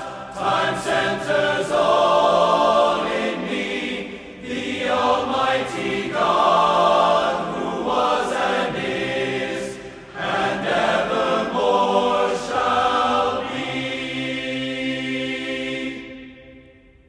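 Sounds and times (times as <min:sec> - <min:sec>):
men's choir singing a cappella: 0:00.0 - 0:16.6.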